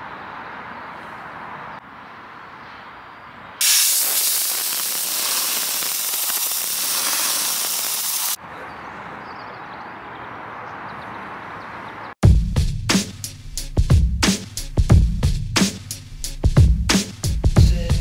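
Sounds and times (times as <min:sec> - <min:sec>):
compressed air hissing: 0:03.6 - 0:08.4.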